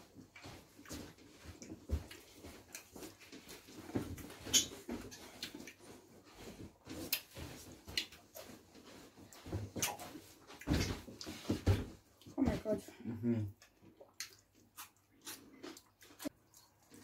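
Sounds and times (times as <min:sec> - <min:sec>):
people chewing and biting: 0:00.0 - 0:12.4, 0:13.5 - 0:17.0
wet mouth noises: 0:04.5 - 0:04.7, 0:13.6 - 0:17.0.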